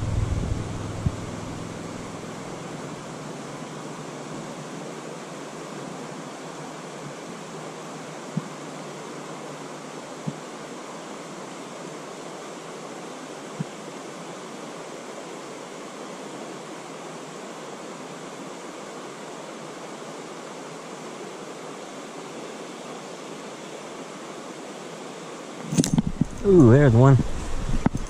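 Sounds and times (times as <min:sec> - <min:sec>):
low thump: 0:00.0 - 0:01.7
stream flowing over rocks: 0:00.0 - 0:28.0.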